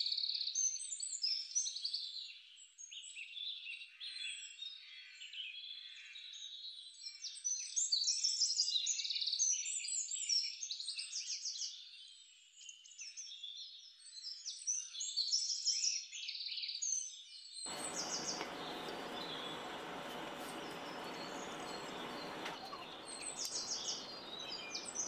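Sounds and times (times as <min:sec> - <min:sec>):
small birds chirping: 0:17.7 - 0:25.0
steady noise: 0:17.7 - 0:25.0.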